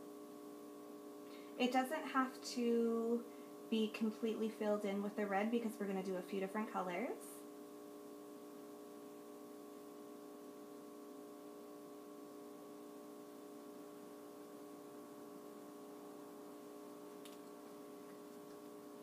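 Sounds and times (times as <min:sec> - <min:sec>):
faint steady hum: 0:00.0 - 0:19.0.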